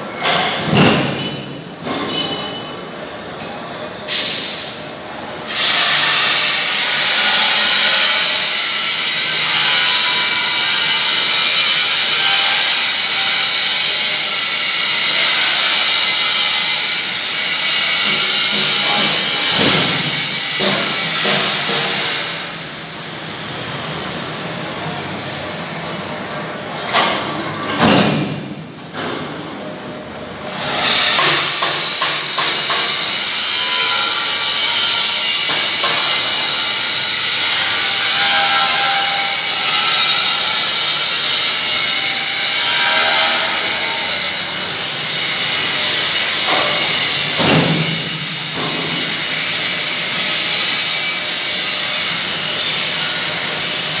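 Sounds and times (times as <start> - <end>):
thresher rushing hiss: 5.5 - 22.6.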